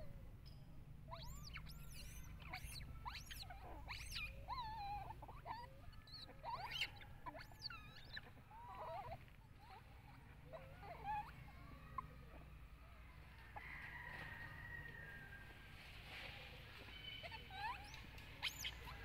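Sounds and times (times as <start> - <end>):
monkeys squealing: 1.1 - 12.5, 16.9 - 19.0.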